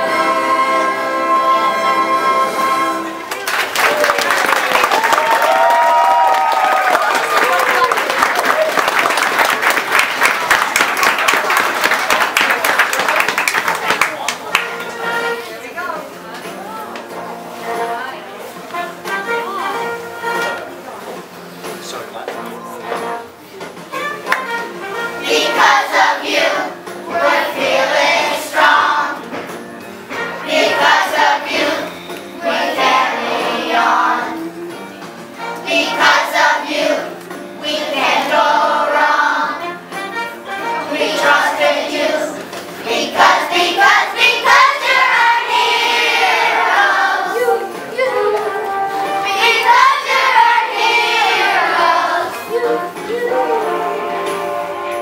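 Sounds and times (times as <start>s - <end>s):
children singing in chorus: 40.8s - 54.7s.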